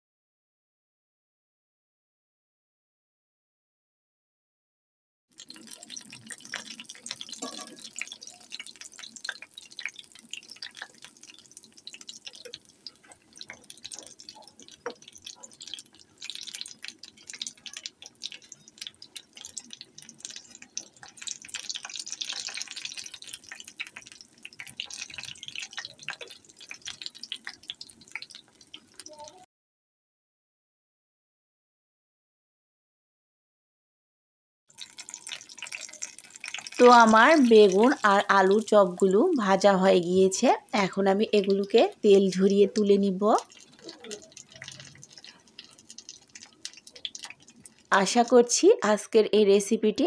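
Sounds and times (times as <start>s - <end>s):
food deep-frying in oil: 5.3s - 29.5s, 34.7s - 50.0s.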